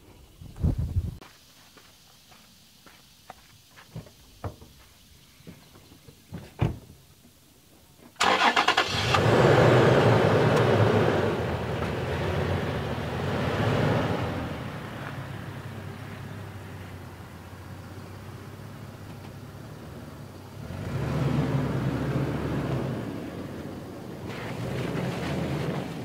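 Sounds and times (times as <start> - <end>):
engine cranking and revving: 8.2 - 15.8, 18.9 - 26.0.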